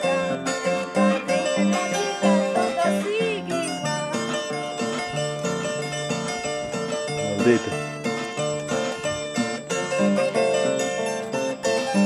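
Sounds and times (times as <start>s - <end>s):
harp being plucked: 0.0s - 12.0s
woman singing: 1.0s - 4.2s.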